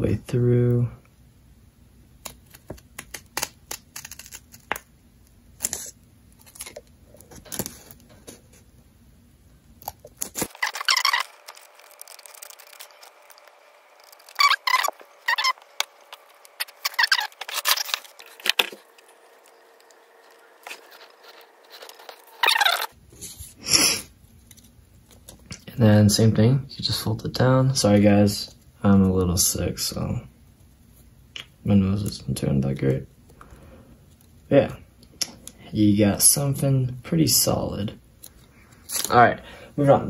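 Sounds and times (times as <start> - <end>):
scissors snipping paper: 2.2 - 4.8, 5.6 - 8.4, 9.8 - 18.8
paper rustling: 5.6 - 8.7, 10.0 - 23.6.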